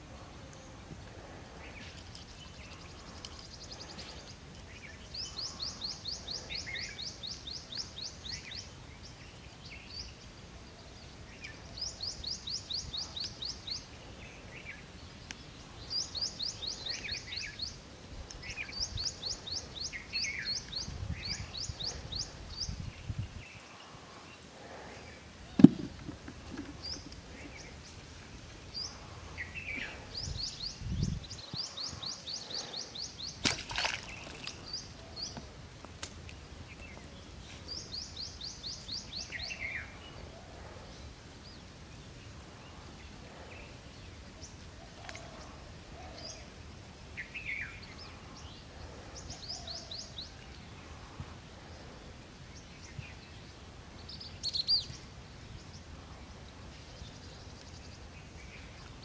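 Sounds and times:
faint outdoor background: 0.0s - 59.0s
birds chirping rapidly: 11.0s - 35.5s.

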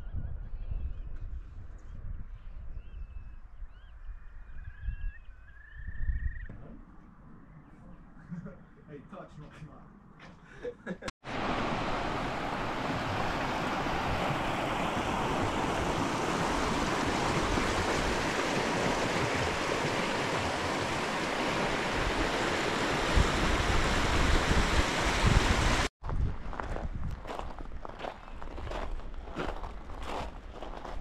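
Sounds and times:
water rushing: 11.2s - 25.9s.

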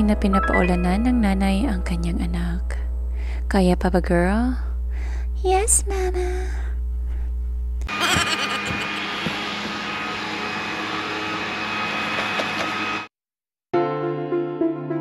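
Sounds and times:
faint steady hums: 0.8s - 9.4s.

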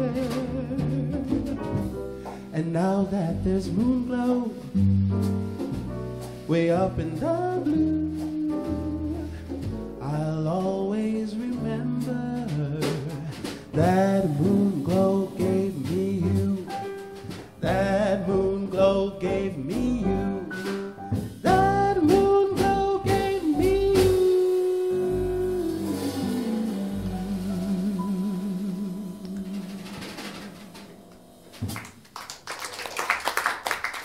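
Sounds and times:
man singing: 0.0s - 5.0s, 6.4s - 30.6s
jazz band playing: 0.0s - 32.5s
audience applause: 31.6s - 34.0s.

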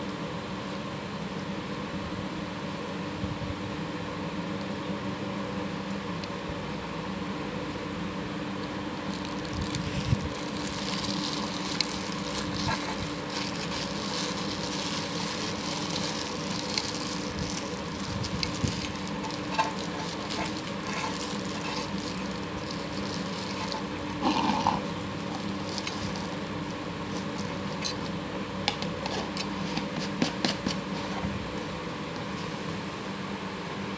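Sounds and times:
steady hum: 0.0s - 33.9s
plastic bag crinkling: 9.0s - 28.2s.

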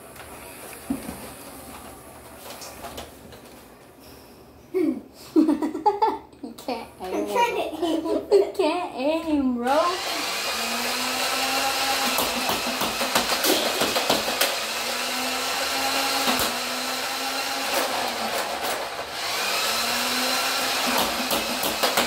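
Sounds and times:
toy blaster motors whirring: 9.7s - 22.0s.

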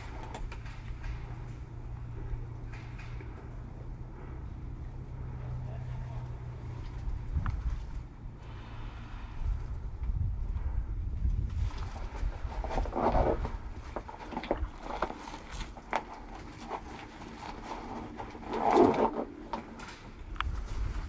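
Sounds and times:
sharp clicks and knocks: 2.5s - 3.6s
wind buffeting microphone: 6.6s - 15.0s, 20.1s - 21.0s.

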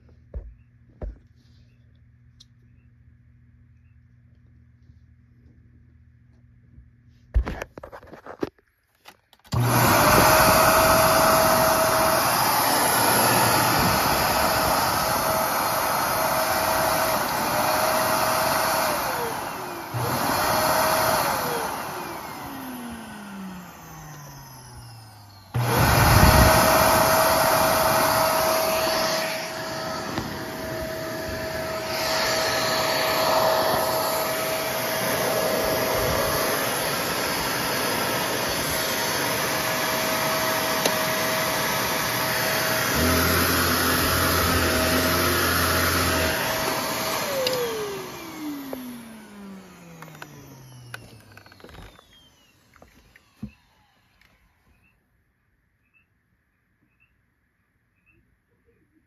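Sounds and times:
vacuum cleaner motor whine: 9.0s - 54.9s.

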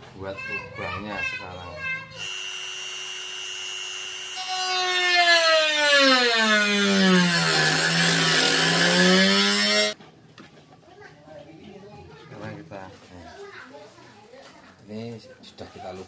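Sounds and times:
electric rotary tool whining: 2.2s - 10.0s
rotary tool cutting wood: 2.2s - 10.0s.

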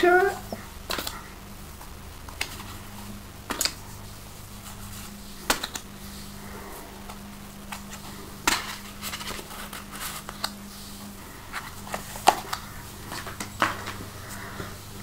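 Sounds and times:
faint low hum: 0.0s - 15.0s
cards tapping and clicking: 3.5s - 3.8s, 5.4s - 5.9s, 7.0s - 10.6s, 11.6s - 14.8s.

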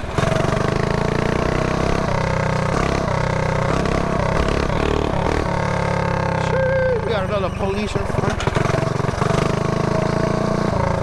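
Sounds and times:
mini bike engine running: 0.0s - 11.0s.

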